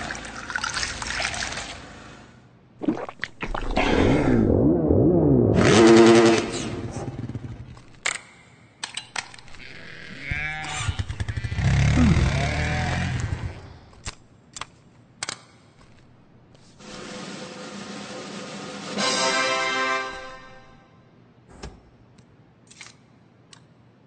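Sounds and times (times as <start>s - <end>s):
engine-like revving: 3.8s - 7.9s, 9.5s - 13.9s.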